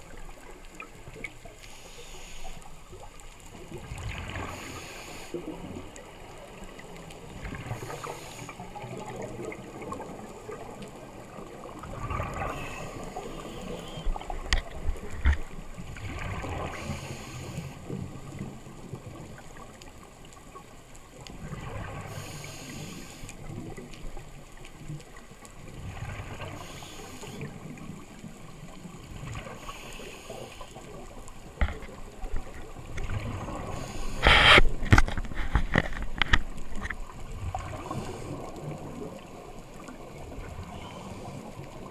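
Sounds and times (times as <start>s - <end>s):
regulator inhalation hiss: 1.6s - 2.7s, 4.5s - 5.4s, 7.8s - 8.6s, 16.7s - 17.8s, 22.1s - 23.3s, 26.6s - 27.5s, 29.6s - 30.8s, 33.7s - 34.6s
gurgle of exhaled bubbles: 3.7s - 5.9s, 7.2s - 13.3s, 14.2s - 17.1s, 32.2s - 35.5s.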